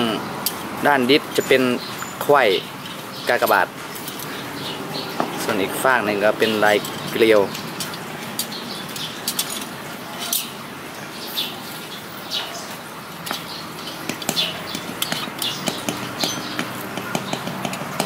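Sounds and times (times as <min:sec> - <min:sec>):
metal spokes clinking: 0:05.3 - 0:10.6, 0:13.2 - 0:18.0.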